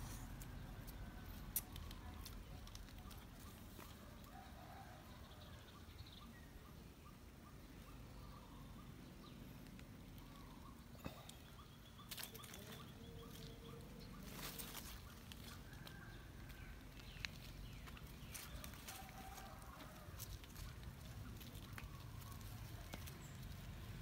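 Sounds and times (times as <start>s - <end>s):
light scuffs and clicks: 12.0s - 13.6s, 14.2s - 23.8s
rustling through dry leaves: 12.1s - 24.0s.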